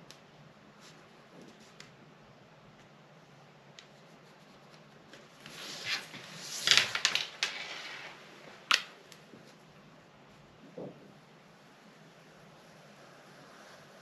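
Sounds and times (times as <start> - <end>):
paper rustling and scratching: 3.9 - 8.9.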